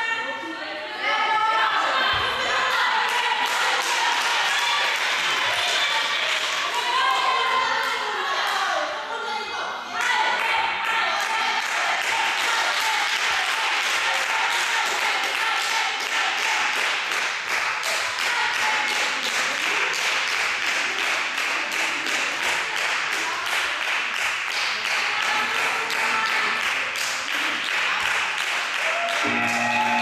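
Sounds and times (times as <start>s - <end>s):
spectators clapping rapidly: 2.6s - 8.6s, 10.0s - 30.0s.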